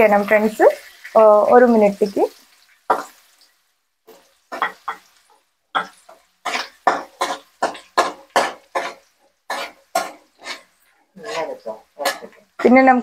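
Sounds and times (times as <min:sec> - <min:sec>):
onions frying: 0:00.0 - 0:13.0
spatula scraping a pan: 0:02.3 - 0:03.5, 0:04.1 - 0:13.0.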